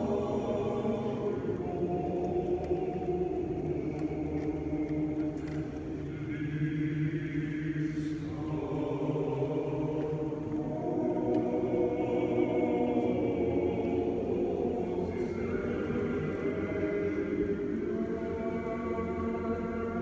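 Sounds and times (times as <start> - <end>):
male chorus singing a cappella: 0.0 - 20.0.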